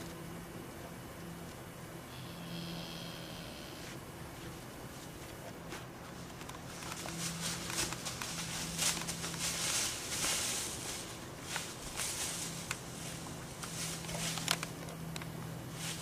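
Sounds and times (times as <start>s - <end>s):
dry leaves rustling and crackling: 6.0s - 16.0s.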